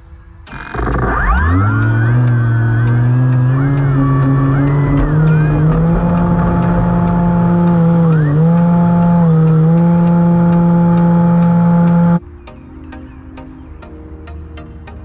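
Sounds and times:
model plane electric motor drone: 0.5s - 12.2s.

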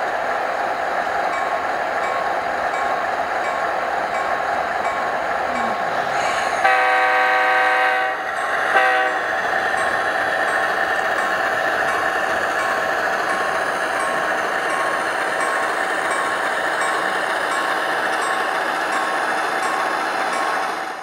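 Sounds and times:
train horn blast: 6.6s - 9.4s.

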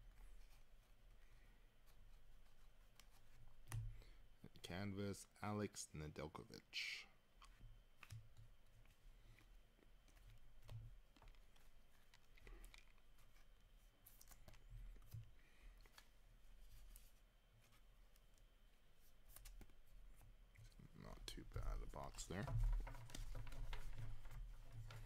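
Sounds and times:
trading cards clicking and tapping: 7.4s - 9.4s, 21.3s - 25.0s.

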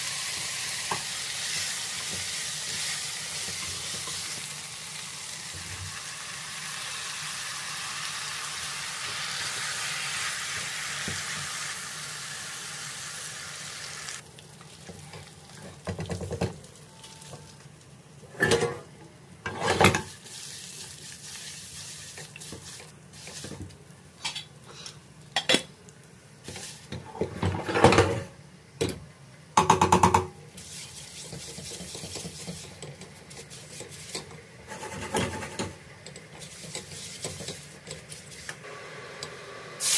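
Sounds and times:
vegetables sizzling in a pan: 0.0s - 18.2s, 19.4s - 27.4s, 30.4s - 39.9s
spatula and pots clattering: 18.3s - 20.2s, 29.7s - 38.3s
spatula scraping metal pots: 30.6s - 38.2s.

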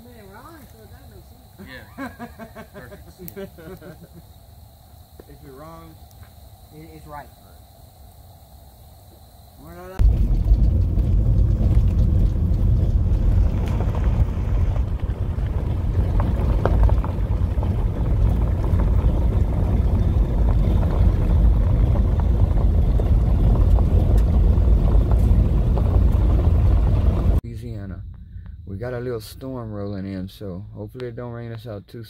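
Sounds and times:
vehicle engine and road rumble: 9.9s - 29.0s.

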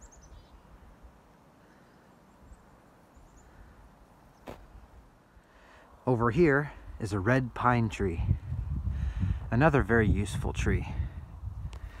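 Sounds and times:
faint high bird chirps: 0.0s - 0.8s, 1.8s - 3.6s.

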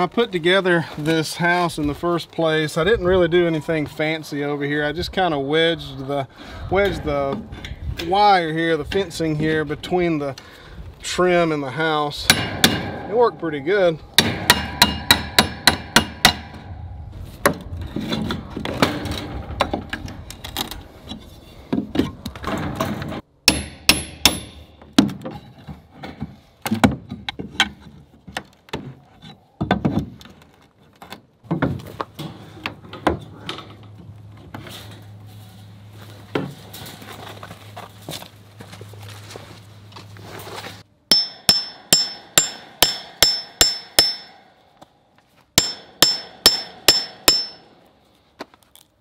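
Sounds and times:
hammer striking steel pry bar: 12.3s - 13.3s, 14.2s - 16.6s, 23.5s - 25.2s, 41.1s - 44.6s, 45.6s - 47.8s.

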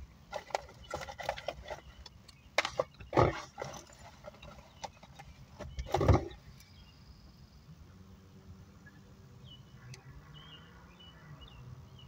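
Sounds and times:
objects being rummaged through: 0.3s - 2.0s, 2.6s - 6.4s.

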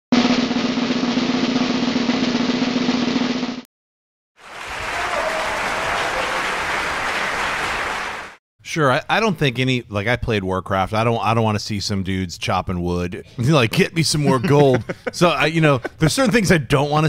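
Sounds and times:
drum roll: 0.1s - 3.6s.

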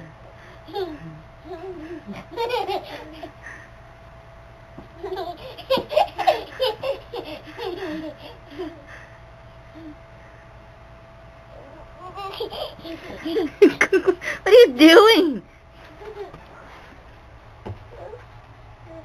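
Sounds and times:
faint steady whine: 0.0s - 19.0s
baby laughing: 5.0s - 8.4s, 12.0s - 14.0s.

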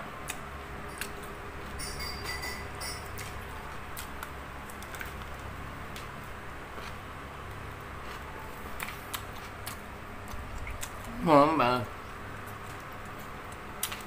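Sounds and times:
low steady hum: 0.0s - 14.0s
wet chewing: 7.9s - 11.2s, 11.9s - 14.0s.

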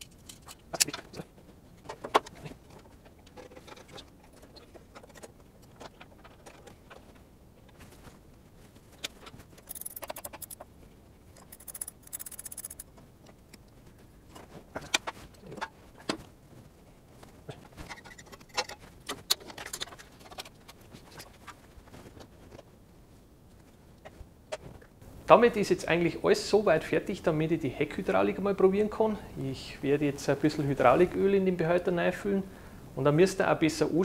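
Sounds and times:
tools and cable clicking: 9.0s - 10.6s, 11.4s - 13.8s
short scratchy bursts: 11.5s - 12.8s.

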